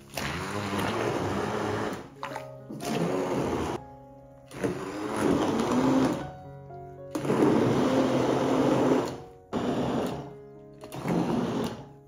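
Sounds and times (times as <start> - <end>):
background music: 0.0 - 12.0
kitchen appliance motor running: 0.1 - 2.1, 2.9 - 3.8, 4.5 - 6.2, 7.1 - 10.3, 10.9 - 11.8.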